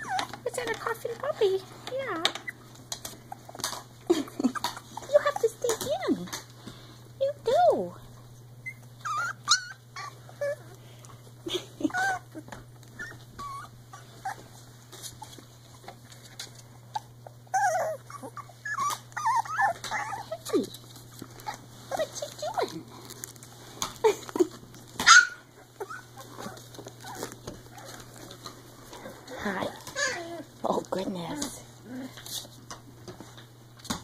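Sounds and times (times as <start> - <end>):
puppies whimpering and yipping: 0.0 - 1.3, 2.1 - 6.0, 8.6 - 10.8, 11.5 - 15.5, 16.9 - 20.7, 25.0 - 28.4, 29.2 - 30.6.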